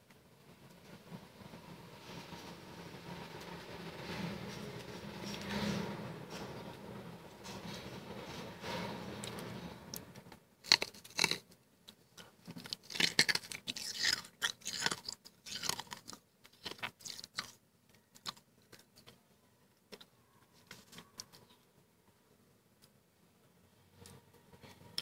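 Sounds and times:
chewing crunchy frost: 10.6 - 11.5, 12.2 - 19.1.

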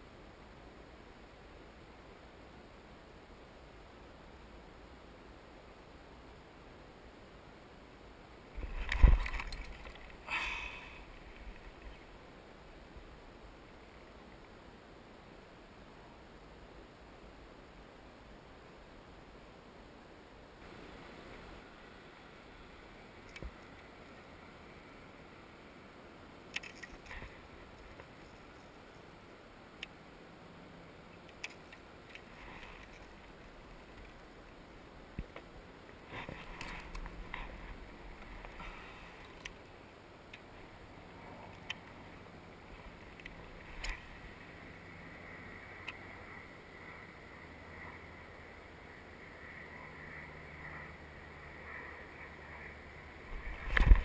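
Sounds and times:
fishing gear clicks and knocks: 8.6 - 10.2, 26.5 - 28.8.

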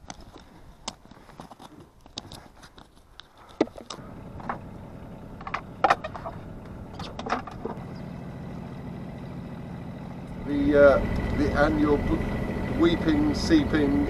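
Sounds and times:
boat engine running: 3.9 - 14.0
sharp clicks and knocks: 5.4 - 7.8.

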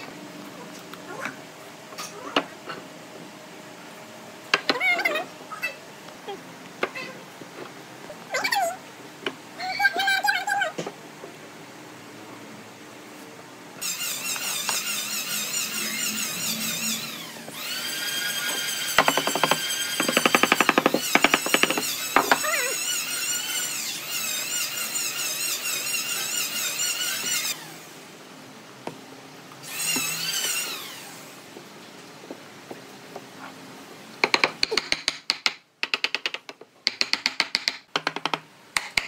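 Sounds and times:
power tool motor whining: 13.8 - 27.9, 29.6 - 31.3.

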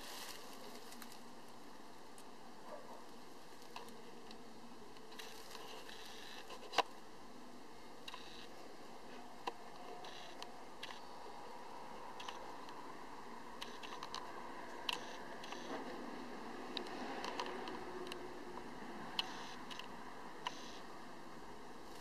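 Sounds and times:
steady low hiss: 0.0 - 22.0.

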